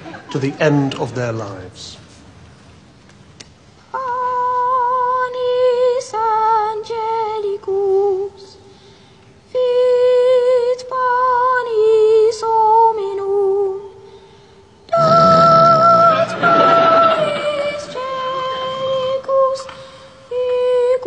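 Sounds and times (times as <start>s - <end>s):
boy singing solo: 14.9s - 19.7s.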